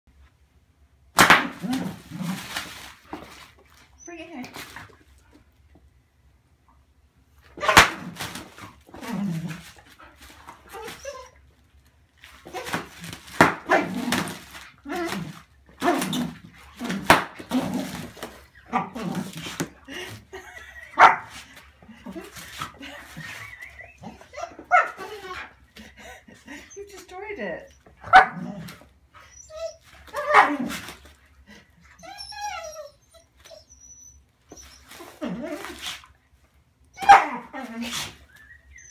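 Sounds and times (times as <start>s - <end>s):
bubble wrap popping: 1.2s - 3.8s, 12.2s - 18.4s, 19.0s - 19.7s
bubble wrap crinkling: 1.4s - 4.0s, 7.8s - 24.1s
plastic rustling: 1.5s - 5.3s, 8.0s - 24.1s
dog whining barks: 7.6s - 8.1s, 21.0s - 21.4s, 23.2s - 25.6s, 28.0s - 30.8s, 32.0s - 36.0s, 36.9s - 38.9s
dog barking: 21.0s - 21.3s, 28.1s - 28.4s, 37.0s - 37.5s.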